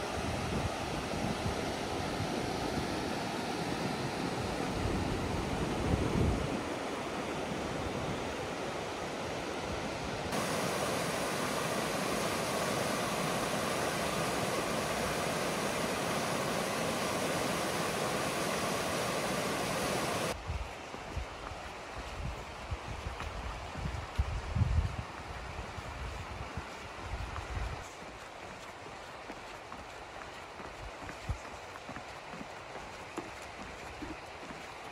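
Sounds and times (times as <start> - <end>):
wind buffeting microphone: 0.0 - 8.6, 9.6 - 27.8
river rushing over rocks: 0.0 - 20.4.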